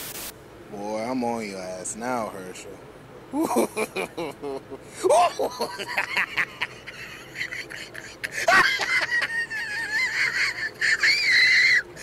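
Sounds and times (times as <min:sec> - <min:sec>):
high-pitched laugh-like squeal: 0:03.3 - 0:12.0.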